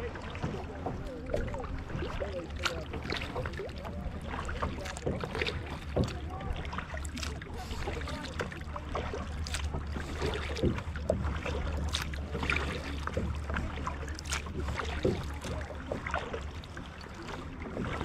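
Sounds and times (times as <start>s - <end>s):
kayak paddle splashing: 0.0s - 18.0s
water lapping at hull: 0.0s - 18.0s.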